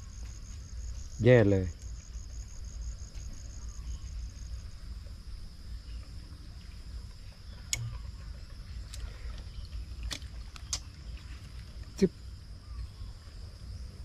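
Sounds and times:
insects chirping: 0:00.0 - 0:14.0
sharp click: 0:07.7 - 0:08.0.

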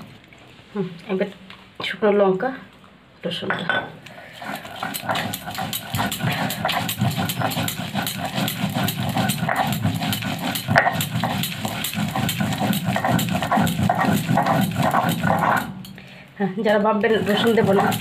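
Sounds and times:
stone roller grinding on slab: 0:04.3 - 0:16.0, 0:17.0 - 0:18.0.

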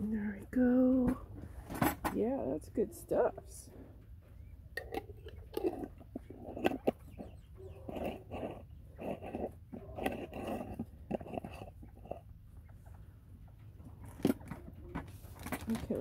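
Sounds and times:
quail clucking calls: 0:04.3 - 0:09.0.

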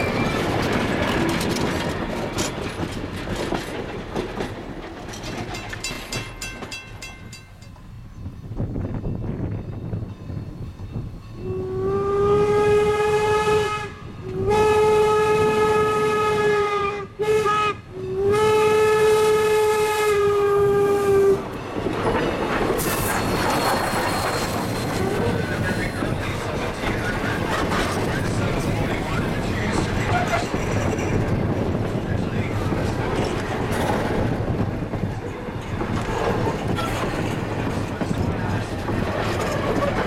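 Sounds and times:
train wheels rumbling on rails: 0:00.0 - 0:40.0
steam whistle blasts: 0:11.4 - 0:21.4.

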